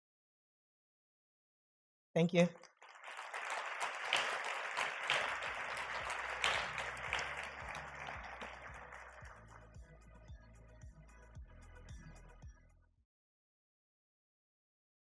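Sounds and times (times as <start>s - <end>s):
audience applauding: 2.6s - 10.2s
background music with steady beat: 4.2s - 13.0s.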